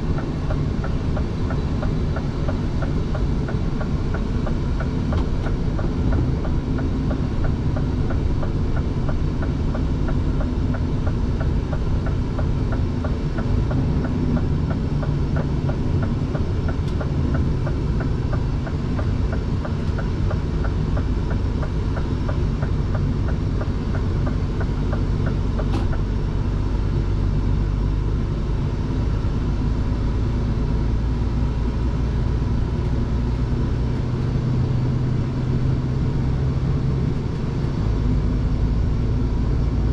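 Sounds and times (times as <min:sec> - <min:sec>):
light regular ticking: 0:00.0 - 0:26.3
truck engine and road rumble: 0:00.0 - 0:39.9.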